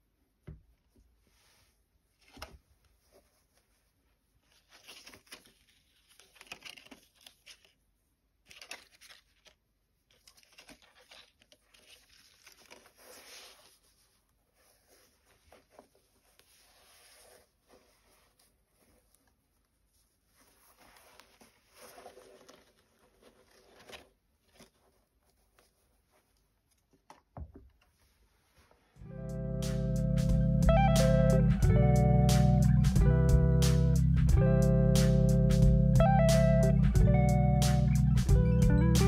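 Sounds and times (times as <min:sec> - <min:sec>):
gloved hands rustling sneakers: 0:08.5 - 0:29.0.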